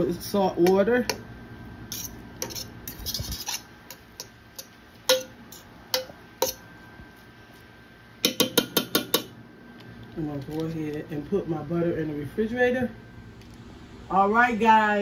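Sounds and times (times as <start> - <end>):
fork stirring rice: 0.6 - 7.3
fork clinking against metal pot: 1.9 - 6.6.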